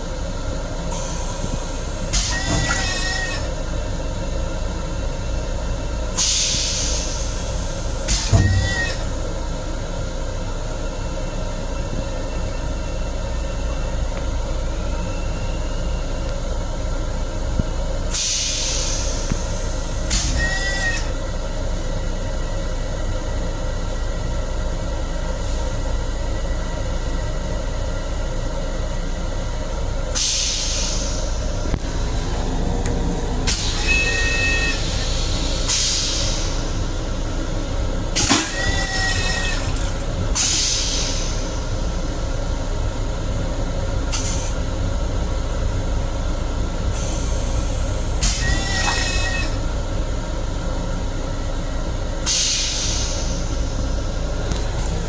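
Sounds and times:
train running rumble: 0:00.0 - 0:55.0
brief high squeal: 0:02.2 - 0:03.5, 0:08.1 - 0:09.1, 0:20.1 - 0:21.1, 0:33.6 - 0:35.1, 0:38.4 - 0:39.7, 0:48.2 - 0:49.6.

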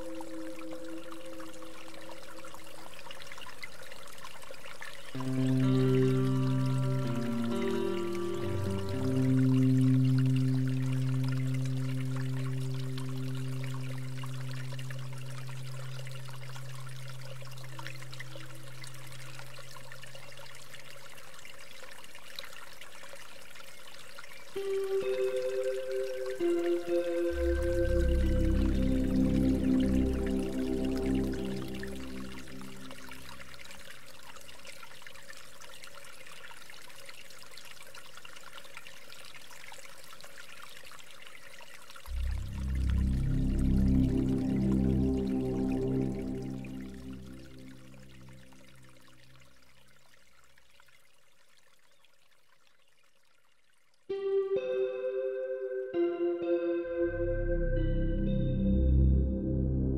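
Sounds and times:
stream running over rocks: 0:00.0 - 0:53.5
soft music: 0:05.1 - 0:19.9, 0:24.6 - 0:33.6, 0:42.1 - 0:49.0, 0:54.1 - 0:59.9
low droning tone: 0:05.2 - 0:19.9, 0:24.6 - 0:33.5, 0:42.1 - 0:49.1, 0:56.9 - 0:59.9.

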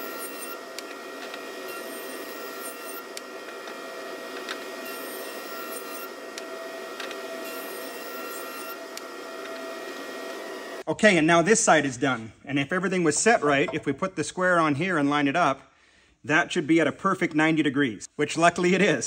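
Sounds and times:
jointer cutting wood board: 0:00.0 - 0:10.8.

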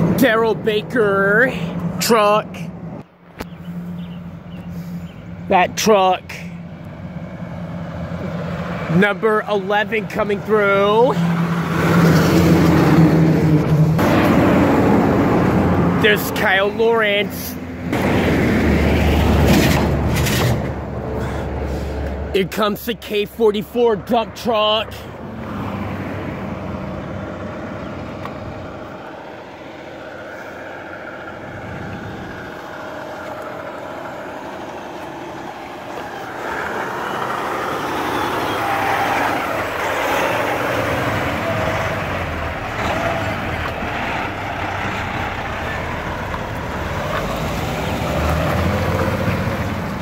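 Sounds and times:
dump truck passing by: 0:00.0 - 0:50.0.

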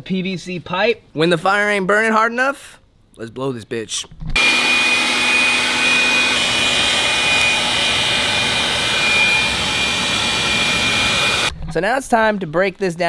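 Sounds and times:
air blower rushing air: 0:04.4 - 0:11.5
high-pitched blower whine: 0:04.4 - 0:11.5.

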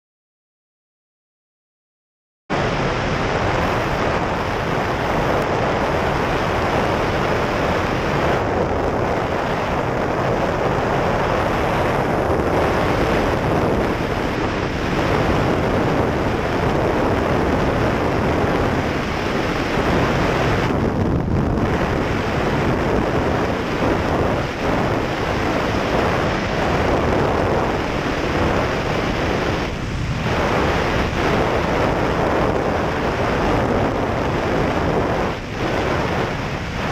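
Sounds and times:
aircraft engine and propeller: 0:02.5 - 0:36.9
loud wind rush: 0:02.5 - 0:36.9.

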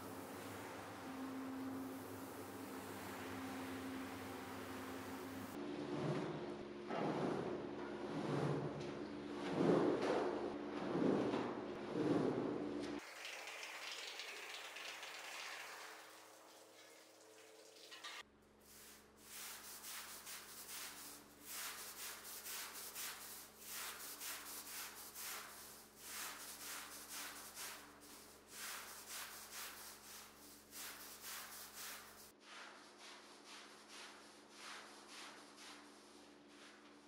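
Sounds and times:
hand tool rubbing over rug: 0:01.0 - 0:12.6.

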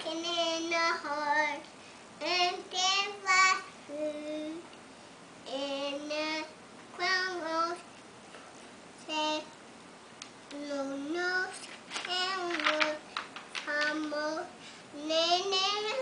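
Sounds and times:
toddler singing: 0:00.0 - 0:01.6, 0:02.2 - 0:04.7, 0:10.5 - 0:13.0, 0:13.6 - 0:16.0.

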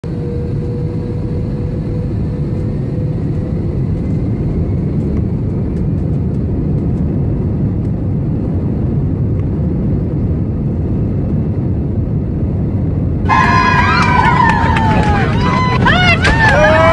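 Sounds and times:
airliner cabin rumble: 0:00.0 - 0:16.9.

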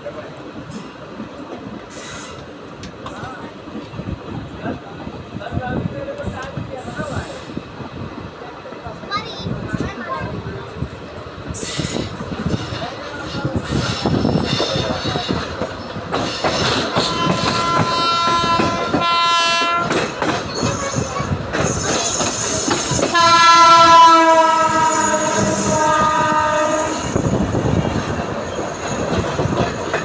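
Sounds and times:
train wheels clattering on rails: 0:09.0 - 0:30.0
locomotive horn blasts: 0:16.9 - 0:20.0, 0:23.1 - 0:27.0.

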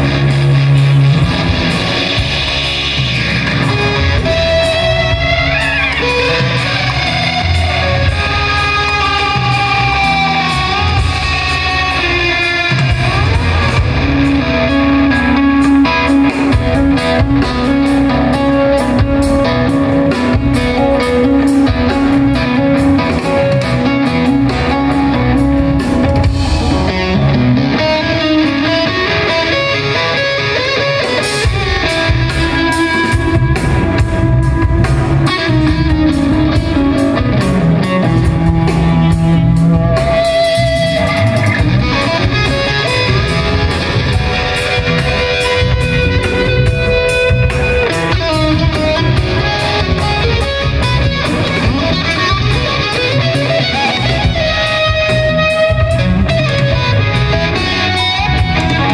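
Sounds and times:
electric guitar lead: 0:00.0 - 0:58.9.

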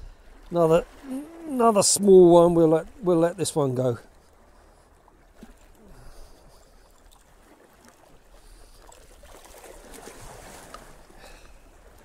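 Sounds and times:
water lapping against rocks: 0:00.0 - 0:12.0.

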